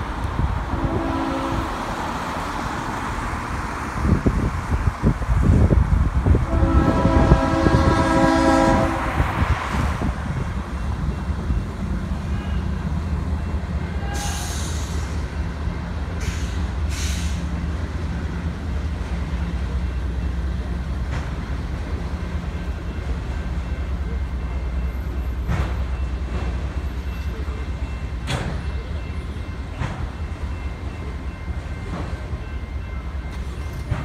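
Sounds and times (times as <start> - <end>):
freight train rumbling past: 0.0 - 34.0
locomotive horn chord: 0.8 - 1.7, 6.5 - 9.2
brief hissing: 16.2 - 17.5.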